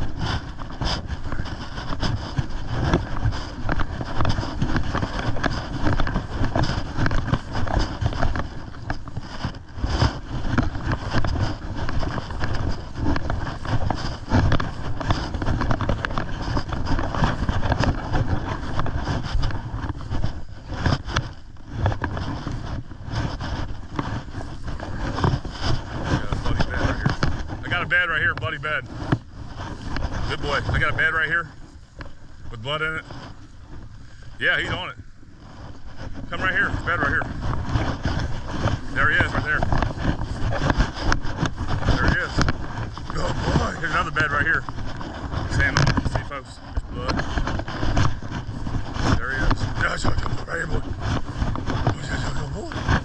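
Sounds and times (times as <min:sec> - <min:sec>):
footsteps in grass: 0:00.0 - 0:53.0
rustling of dry grass: 0:00.0 - 0:53.0
wind rumbling on microphone: 0:00.0 - 0:53.0.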